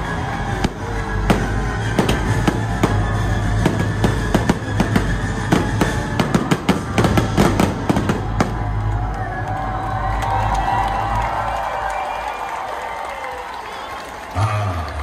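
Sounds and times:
fireworks bursting and crackling: 0.0s - 9.0s
show music: 0.0s - 15.0s.

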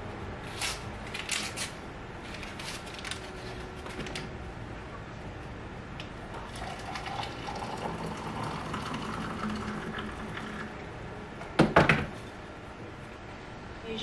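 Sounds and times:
hot water pouring into mug: 6.4s - 10.8s.

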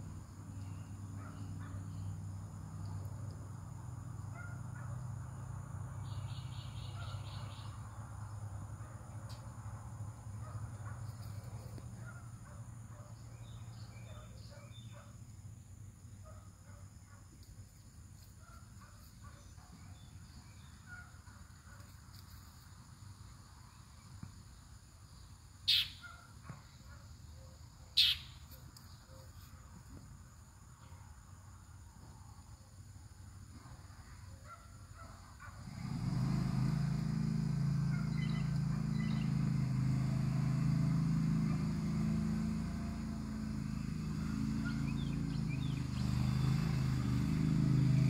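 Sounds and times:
high bird chirps: 25.7s - 26.1s, 28.0s - 28.4s
faint bird calls: 25.7s - 29.6s.

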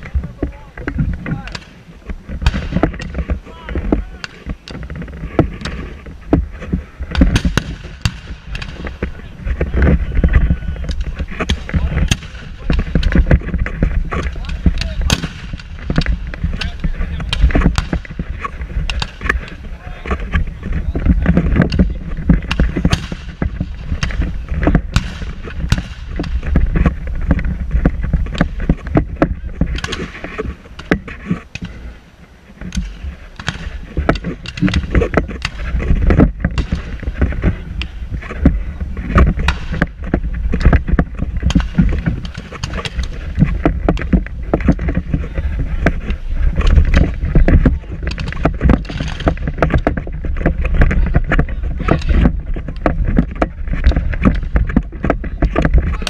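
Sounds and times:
wind buffeting microphone: 0.0s - 56.0s.

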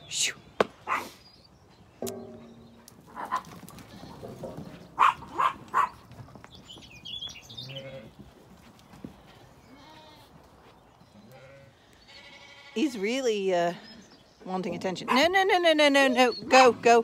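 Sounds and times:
birds chirping: 0.0s - 17.0s
dog barking: 0.9s - 1.2s, 5.0s - 6.0s
sheep bleating: 7.6s - 8.2s, 9.7s - 10.3s, 11.2s - 13.0s.

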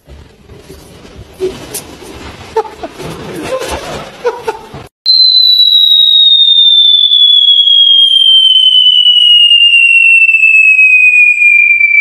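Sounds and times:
room noise: 0.0s - 12.0s
whistle gliding downward: 5.1s - 12.0s.

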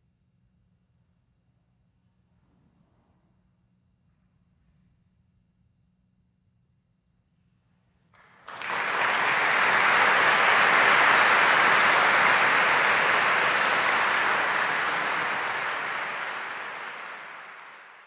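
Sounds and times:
audience applause: 8.2s - 18.0s.

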